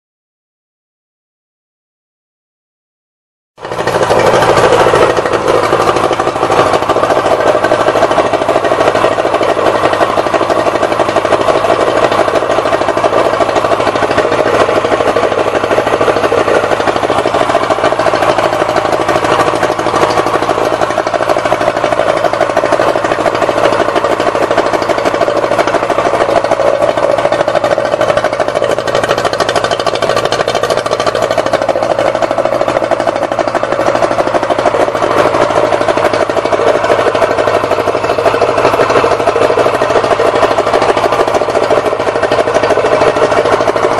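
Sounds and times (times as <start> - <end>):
outboard engine idling: 3.6 - 43.9.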